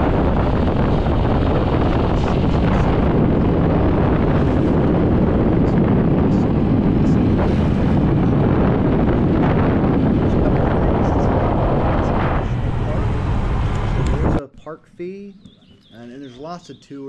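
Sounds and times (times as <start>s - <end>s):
scooter ride rumble: 0.0s - 14.4s
wind buffeting microphone: 0.0s - 14.4s.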